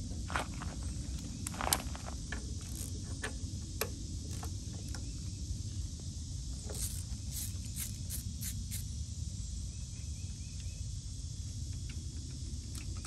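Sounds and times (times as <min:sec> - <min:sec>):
outdoor background noise: 0:00.0 - 0:13.0
hand ratchet clicking: 0:02.6 - 0:03.0, 0:06.7 - 0:08.9.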